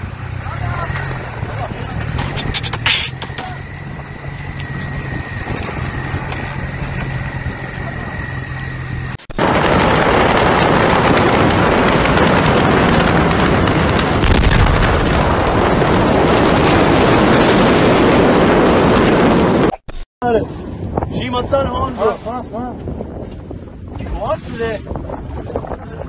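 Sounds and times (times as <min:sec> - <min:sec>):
vehicle-like hum: 0:00.0 - 0:18.2
burning building crackling: 0:03.6 - 0:19.7.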